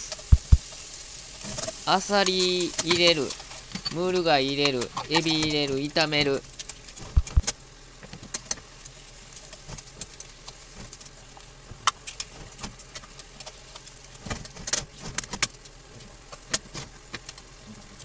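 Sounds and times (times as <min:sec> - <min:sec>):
shells clattering in frying pan: 0:00.0 - 0:05.8.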